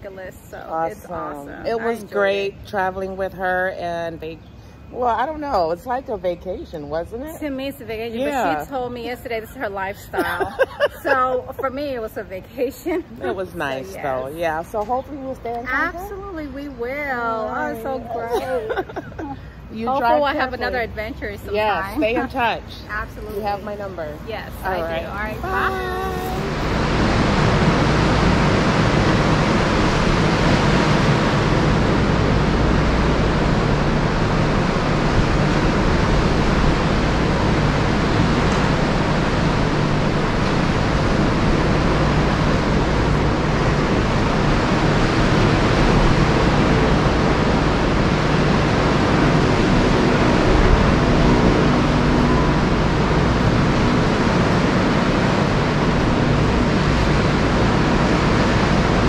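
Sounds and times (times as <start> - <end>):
low steady hum: 0.0 - 59.0
wind: 0.0 - 59.0
ocean surf: 24.8 - 59.0.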